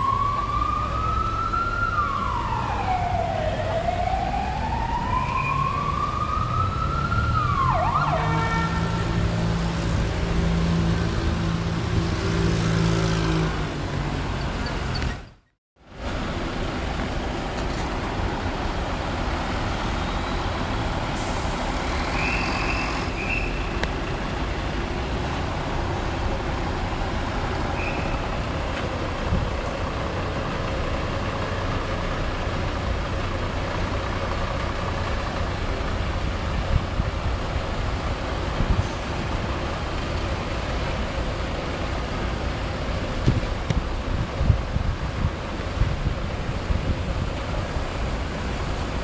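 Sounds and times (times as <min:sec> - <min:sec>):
siren rising in pitch: 0:00.0 - 0:09.4
street traffic: 0:00.0 - 0:49.0.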